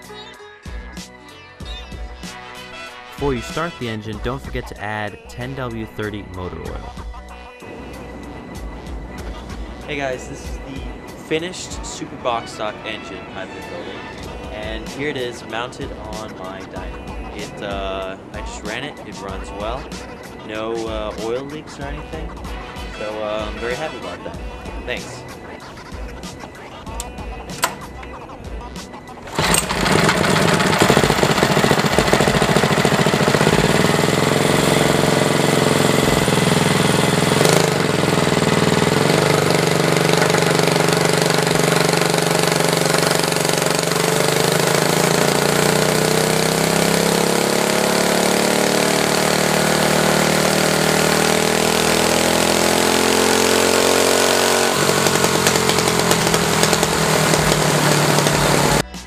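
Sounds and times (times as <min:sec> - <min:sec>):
go-kart engine running loudly: 0:29.2 - 0:58.8.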